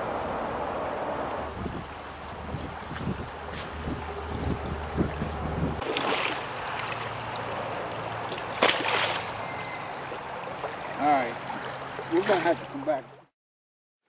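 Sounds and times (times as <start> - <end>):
wind rumble on microphone: 0.0 - 5.9
river water sloshing around boots: 5.8 - 13.2.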